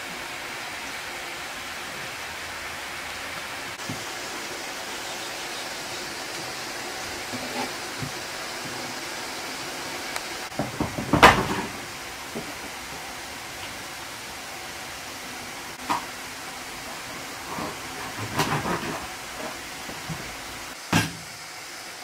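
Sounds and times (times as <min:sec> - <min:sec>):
clatter of sharp knocks: 0:10.5 - 0:11.8.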